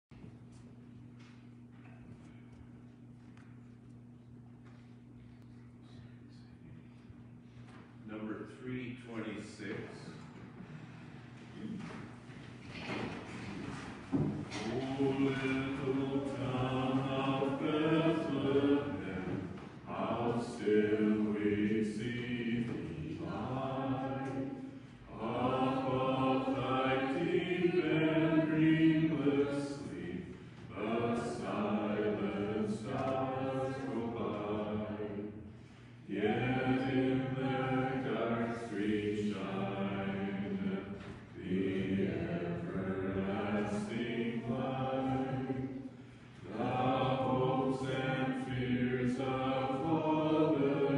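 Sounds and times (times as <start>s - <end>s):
choir singing: 14.5s - 50.9s.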